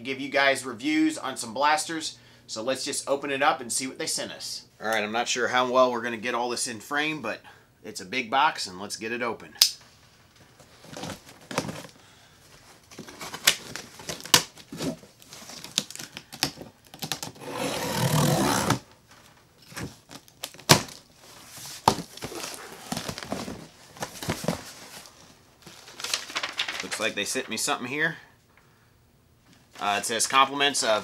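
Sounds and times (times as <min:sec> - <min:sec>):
tape tearing: 0:12.9 - 0:18.9, 0:19.6 - 0:27.0
knife slicing packing tape: 0:16.9 - 0:18.8
cardboard flaps scraping: 0:16.9 - 0:18.9, 0:19.6 - 0:26.8.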